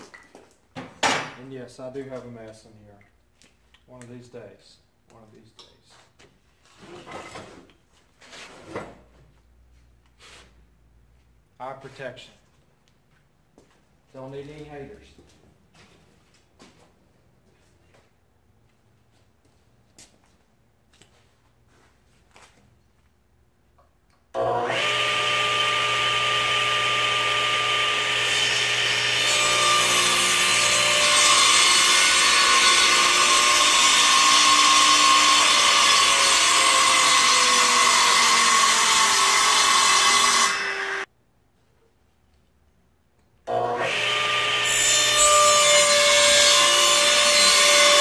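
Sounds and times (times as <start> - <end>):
saw cutting through wood: 24.4 - 41.1, 43.5 - 48.0
saw motor humming and whining: 24.4 - 41.1, 43.5 - 48.0.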